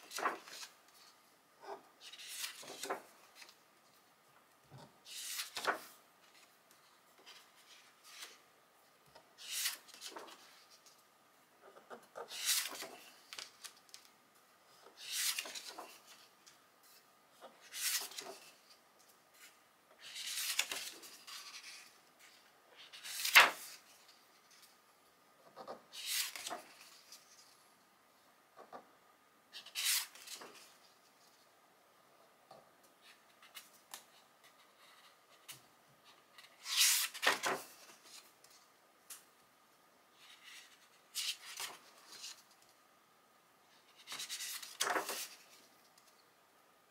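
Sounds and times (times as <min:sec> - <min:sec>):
book pages turning: 0:00.0 - 0:04.0, 0:04.7 - 0:08.4, 0:09.4 - 0:11.0, 0:11.7 - 0:14.2, 0:14.9 - 0:18.8, 0:19.4 - 0:22.0, 0:22.8 - 0:24.7, 0:25.6 - 0:27.4, 0:29.6 - 0:30.9, 0:36.3 - 0:38.6, 0:43.9 - 0:46.1
pages rustling: 0:00.0 - 0:04.1, 0:04.7 - 0:08.4, 0:09.4 - 0:11.0, 0:11.8 - 0:14.2, 0:14.9 - 0:18.8, 0:19.4 - 0:24.8, 0:25.6 - 0:27.5, 0:29.6 - 0:31.0, 0:36.3 - 0:38.6, 0:43.9 - 0:46.2.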